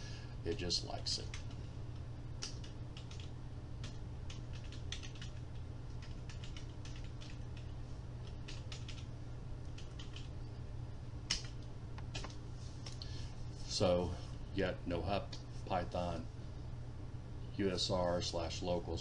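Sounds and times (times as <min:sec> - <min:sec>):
computer keyboard typing: 0:02.4 - 0:10.3, 0:11.3 - 0:12.4.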